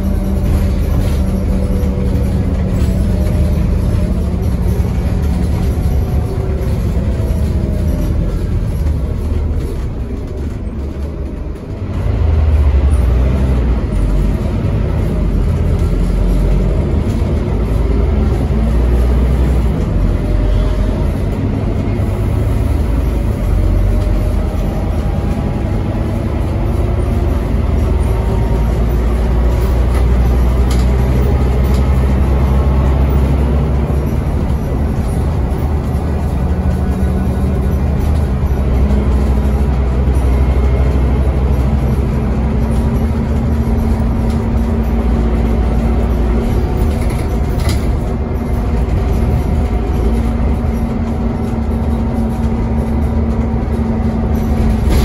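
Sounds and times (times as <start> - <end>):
bus diesel engine rumbling: 0.0 - 55.0.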